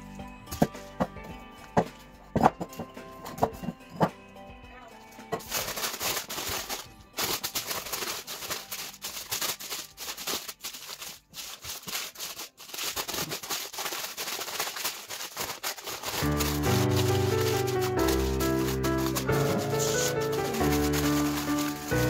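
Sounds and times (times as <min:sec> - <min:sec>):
faint music: 0:00.0 - 0:12.8, 0:16.0 - 0:22.0
paper rustling and crinkling: 0:05.2 - 0:22.0.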